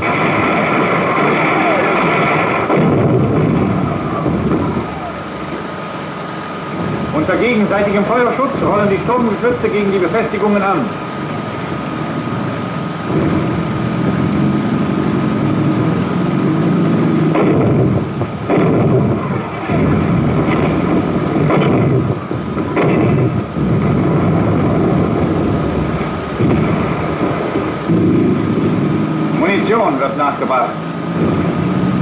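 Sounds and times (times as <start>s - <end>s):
loud gun bangs: 0.0s - 5.8s, 17.3s - 28.5s
tracked vehicle engine droning: 0.0s - 32.0s.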